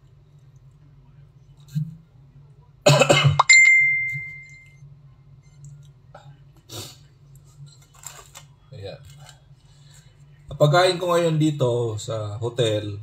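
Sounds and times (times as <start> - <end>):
man coughing: 2.9 - 3.5
bright clink: 3.4 - 4.8.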